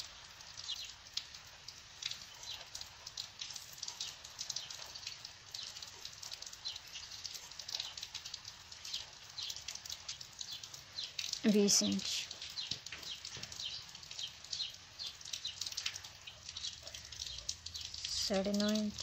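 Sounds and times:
light scratches and ticks: 12.2 - 19.0.

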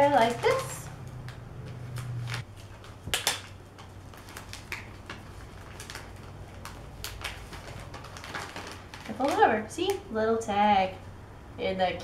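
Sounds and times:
paper rustling: 0.0 - 9.6
tape crackling: 0.0 - 10.2.

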